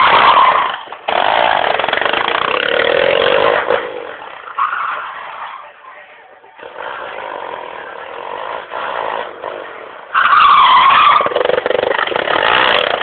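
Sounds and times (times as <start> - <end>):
quad engine revving: 0.0 - 4.4, 6.6 - 10.0, 10.9 - 13.0.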